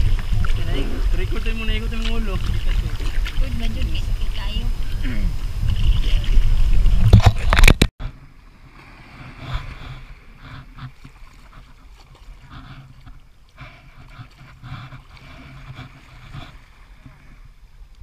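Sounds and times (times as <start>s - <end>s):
paddle knocks and splashes: 0.0s - 4.0s
small waves lapping onto sand: 0.0s - 6.8s, 8.1s - 17.7s
water and wind noise: 0.0s - 18.0s.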